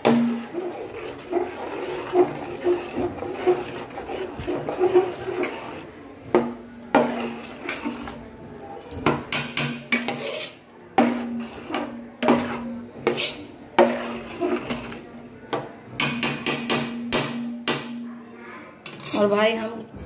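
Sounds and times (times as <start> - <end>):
ladle knocking metal pot: 0.0 - 5.8, 9.0 - 10.3, 11.0 - 15.0
ladle stirring thick gravy: 0.0 - 17.2.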